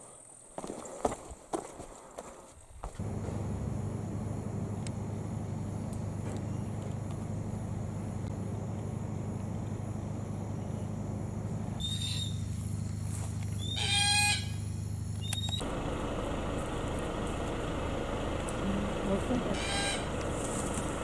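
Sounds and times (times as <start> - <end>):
steady low hum: 2.9 - 21.0
cockatoos calling: 18.7 - 20.3.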